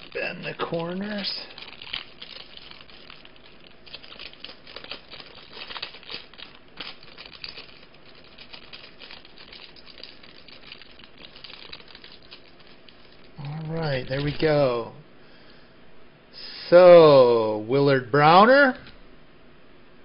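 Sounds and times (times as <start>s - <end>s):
plastic sleeve crinkling: 0.0s - 14.8s.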